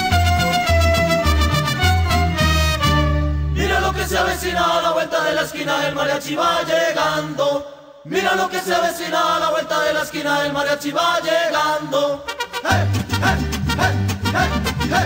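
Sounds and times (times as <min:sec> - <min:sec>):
group voices chanting: 0:03.6 - 0:15.0.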